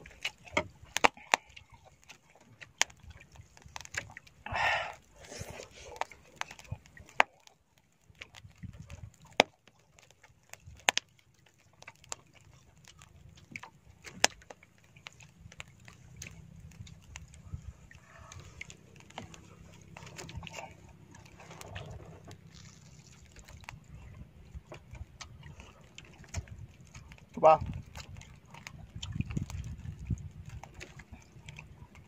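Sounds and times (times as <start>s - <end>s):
short breathy rush: 4.5s - 5.9s.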